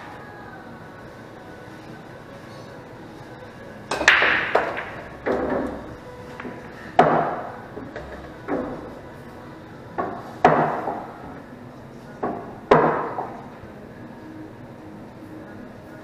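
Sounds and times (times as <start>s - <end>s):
pool balls clacking and rolling: 3.1s - 13.9s.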